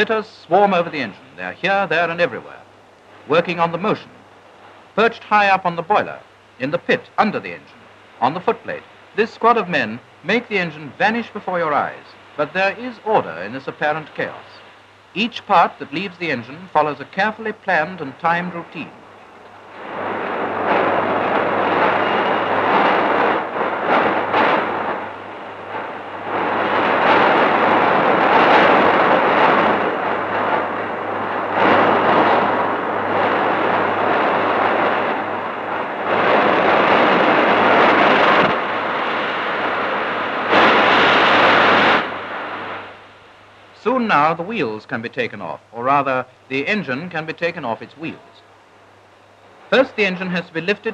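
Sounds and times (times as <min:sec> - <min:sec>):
steady low hum: 0:00.0 - 0:50.9
rushing industrial din: 0:19.0 - 0:42.4.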